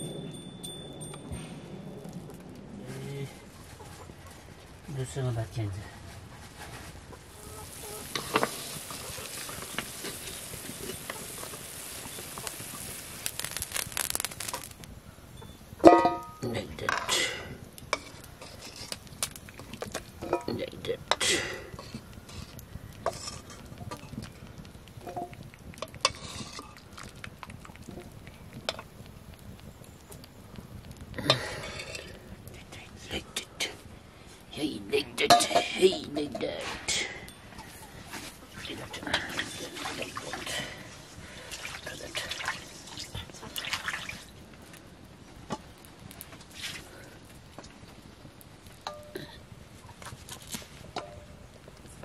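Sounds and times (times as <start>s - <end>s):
metal ladle scraping a wok: 18.0s - 19.0s, 23.1s - 23.6s, 26.0s - 26.8s, 31.4s - 32.1s
water splashing in metal pot: 41.4s - 44.3s.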